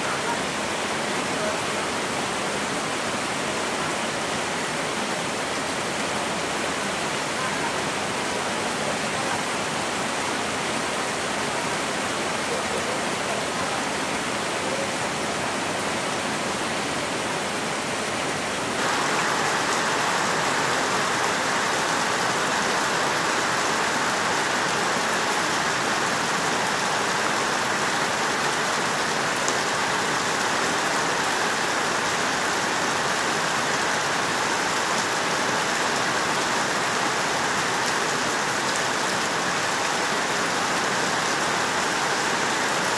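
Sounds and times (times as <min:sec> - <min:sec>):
heavy rain falling: 0:00.0 - 0:42.9
rainwater pouring onto stones: 0:18.8 - 0:42.9.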